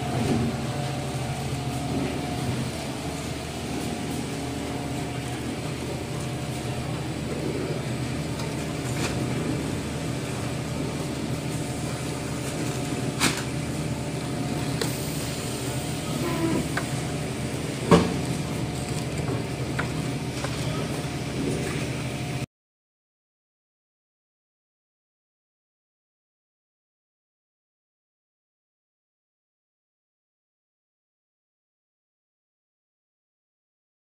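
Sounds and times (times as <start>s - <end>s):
machinery humming: 0.0s - 22.5s.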